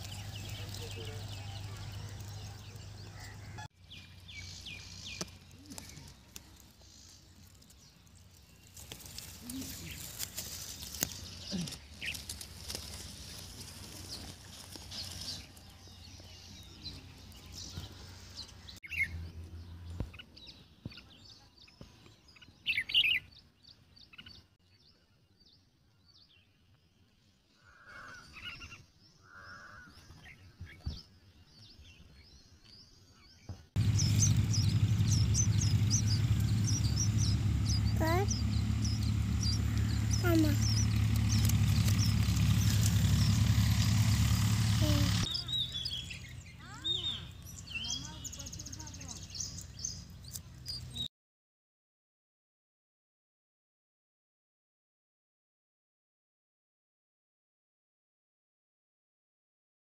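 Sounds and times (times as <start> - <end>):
birds chirping and calling: 0.0 - 19.2, 19.8 - 24.6, 27.5 - 51.1
steady low hum: 33.8 - 45.3.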